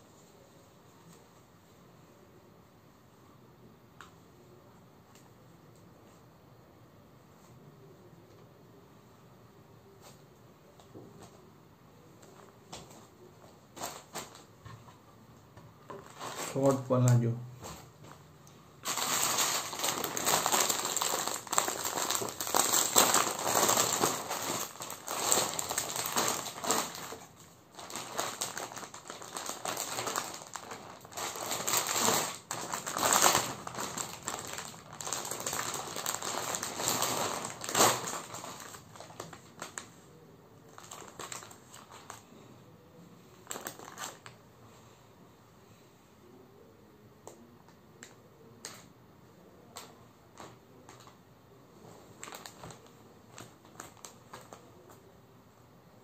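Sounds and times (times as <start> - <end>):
plastic packaging crinkling: 13.7 - 14.6, 15.8 - 17.8, 18.8 - 40.0, 40.6 - 42.3, 43.3 - 44.4, 49.7 - 51.2, 52.1 - 55.0.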